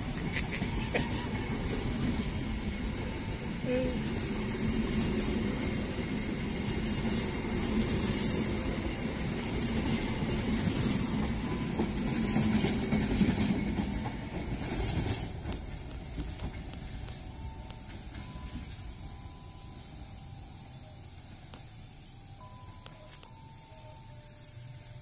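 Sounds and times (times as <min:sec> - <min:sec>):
train wheels clacking on rails: 0:00.0 - 0:19.1
passenger train rumbling past: 0:00.0 - 0:22.8.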